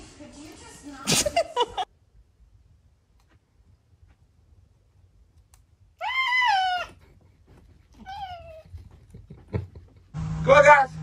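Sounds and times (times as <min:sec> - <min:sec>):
cat meowing: 0:06.0 - 0:07.0, 0:08.0 - 0:08.7.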